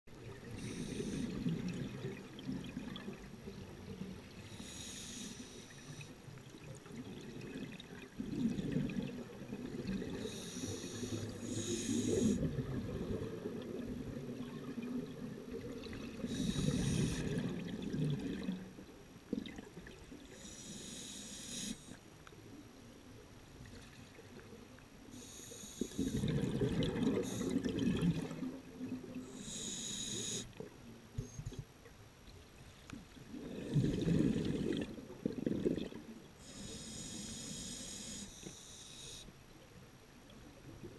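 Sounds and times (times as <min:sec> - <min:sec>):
diver breathing through a regulator: 0:00.5 - 0:01.7, 0:04.4 - 0:06.2, 0:10.0 - 0:12.6, 0:16.2 - 0:17.6, 0:20.3 - 0:22.0, 0:25.1 - 0:28.4, 0:29.2 - 0:30.6, 0:36.4 - 0:39.4
exhaled bubbles: 0:25.2 - 0:29.6, 0:33.3 - 0:36.2.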